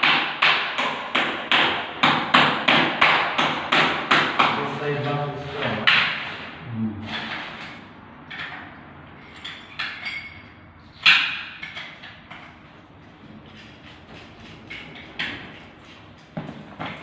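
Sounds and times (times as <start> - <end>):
knocks and metallic clinks: 8.3 - 10.7.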